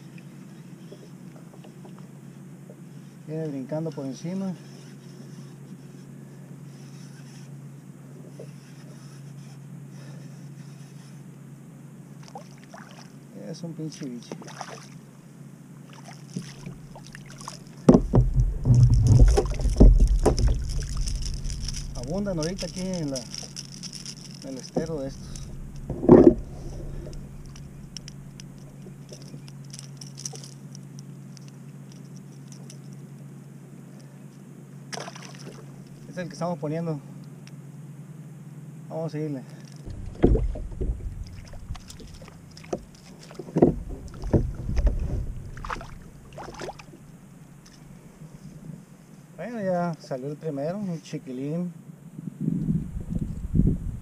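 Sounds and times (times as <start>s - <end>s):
low hum: 14.9s - 36.4s, 39.5s - 49.3s
fishing reel ticking: 19.4s - 30.7s.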